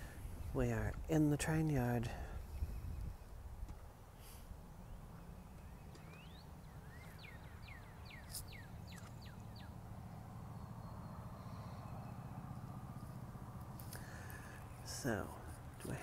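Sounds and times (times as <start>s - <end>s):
songbird whistling: 5.4s - 9.7s.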